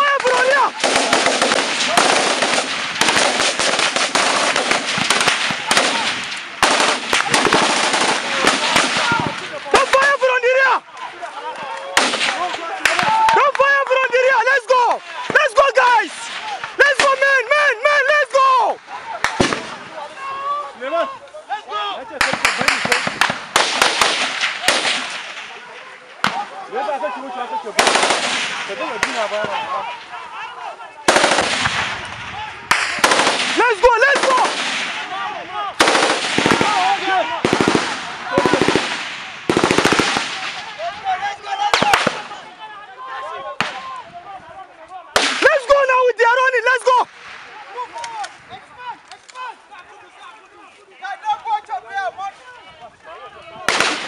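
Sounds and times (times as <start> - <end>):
rifle gunfire: 0.2 - 9.9, 22.2 - 25.6, 27.8 - 29.5, 31.1 - 35.2, 35.8 - 40.8, 53.7 - 54.0
sharp loud gunshot crack: 22.2 - 25.5, 45.2 - 45.5, 53.7 - 54.0.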